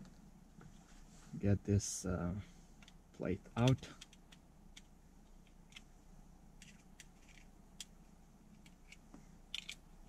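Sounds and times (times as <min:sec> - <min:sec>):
screwdriver prising plastic clicks: 0:08.6 - 0:09.8.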